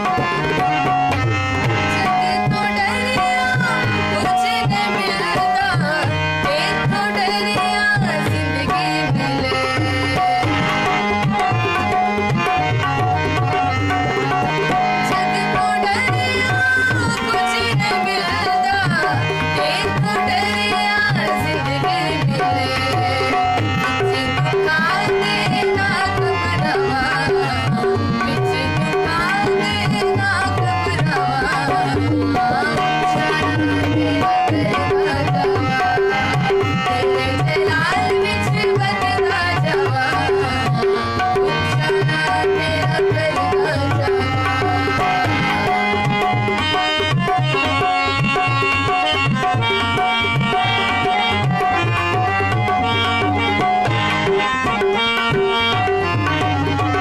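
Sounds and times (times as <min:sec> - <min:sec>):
sustained harmonium notes: 0:00.0 - 0:57.0
tabla drumming: 0:00.0 - 0:57.0
woman singing: 0:00.1 - 0:57.0.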